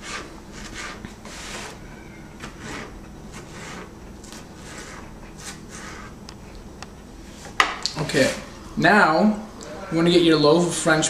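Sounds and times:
knife cutting on plastic board: 2.4 - 6.2.

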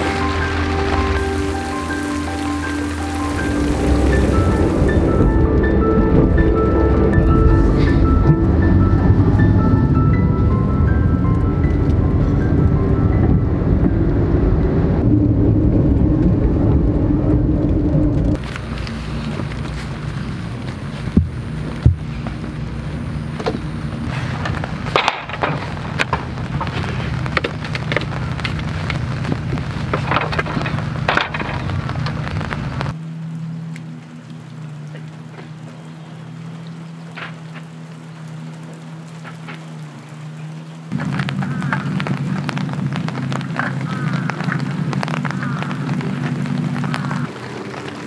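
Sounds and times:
marimba-like music notes: 0.0 - 14.5
car cabin road and engine noise: 0.0 - 48.0
rain pattering on a tent: 0.0 - 48.0.

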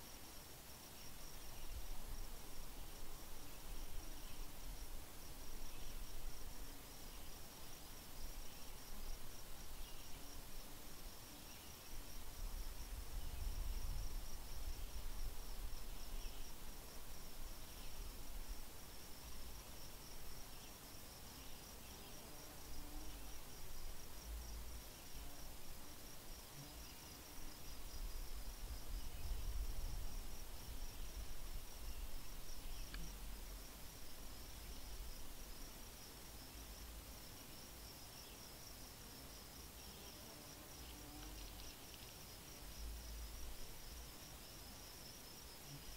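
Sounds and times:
faint chirps: 30.9 - 35.1.

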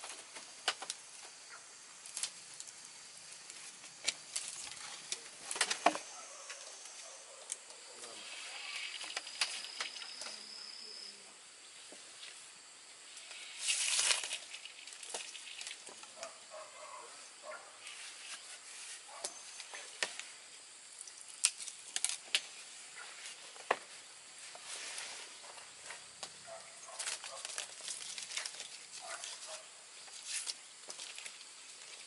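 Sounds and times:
scraping rustle: 3.4 - 10.4, 13.1 - 16.4, 17.4 - 20.3, 21.7 - 32.0.

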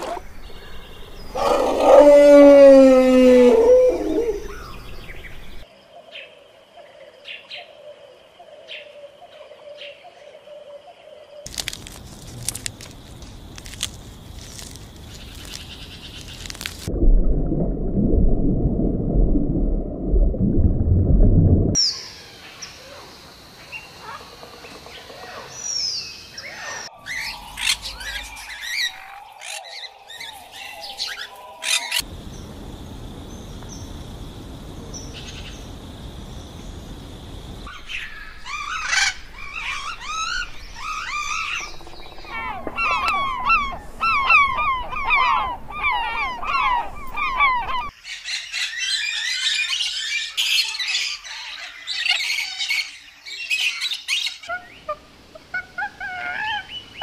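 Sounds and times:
low rumble: 16.9 - 21.8
birds chirping and calling: 23.8 - 32.0, 37.7 - 57.0
faint steady hiss: 27.0 - 41.5.

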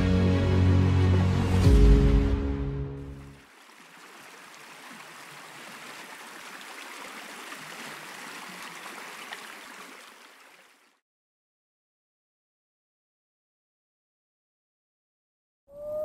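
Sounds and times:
small water splashes: 3.2 - 11.0
stream water running over pebbles: 3.2 - 11.0.

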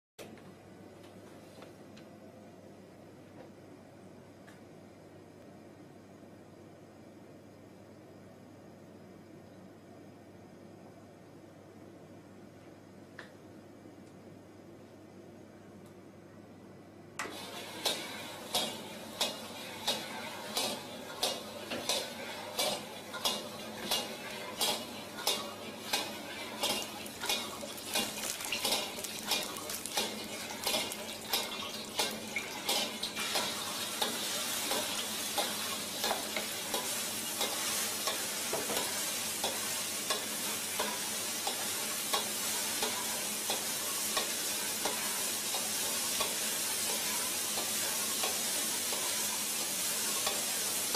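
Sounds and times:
egg and rice sizzling in oil: 17.3 - 50.9.

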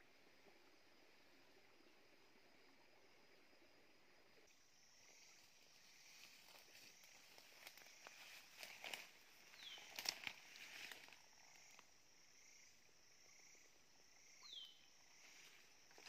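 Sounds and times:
faint insect hiss: 0.0 - 16.0
footsteps crunching through dry leaves: 6.3 - 11.2.

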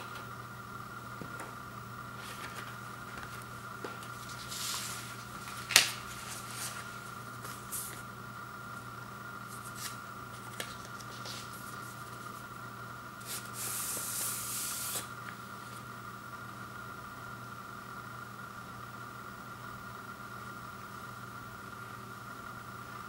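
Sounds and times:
paper sleeves rustling: 2.1 - 8.1, 9.5 - 12.5.

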